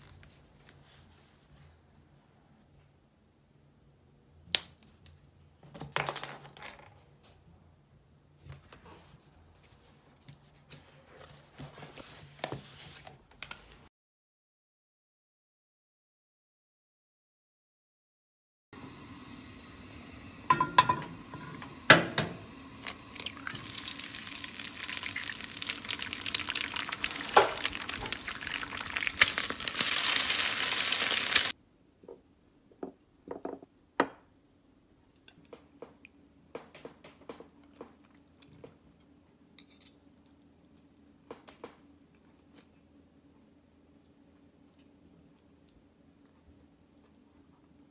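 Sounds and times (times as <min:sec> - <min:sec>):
egg sizzling in oil: 0:18.8 - 0:31.6
tableware clinking: 0:20.5 - 0:21.5.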